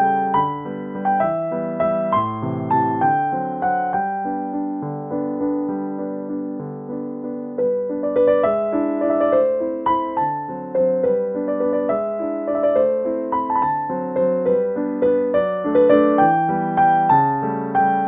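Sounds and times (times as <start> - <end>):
gentle keyboard melody: 0.0 - 18.0.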